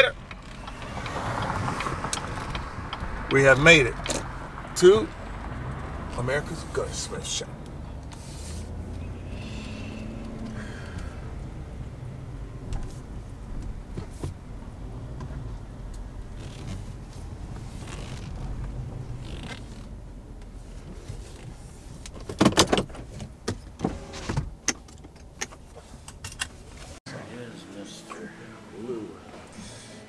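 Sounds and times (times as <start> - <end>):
car engine rumble: 0.0 - 30.0
clicks and knocks in cab: 21.4 - 26.6.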